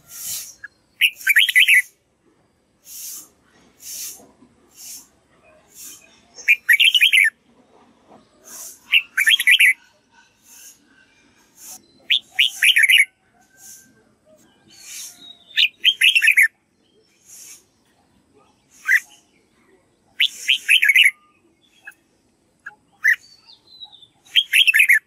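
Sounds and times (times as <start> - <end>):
bird singing warbled phrases: 0.0 - 2.1, 2.8 - 7.4, 8.4 - 10.8, 11.5 - 25.0
short hissy bird noises: 0.0 - 2.1, 2.7 - 7.3, 8.4 - 9.8, 10.4 - 14.0, 14.7 - 17.9, 18.6 - 19.4, 20.2 - 22.0, 22.6 - 25.0.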